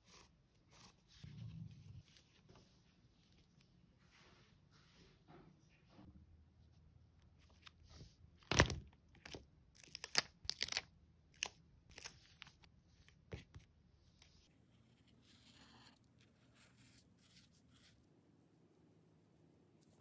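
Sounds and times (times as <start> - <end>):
plastic sticker sheet crackling: 8.5 - 10.8.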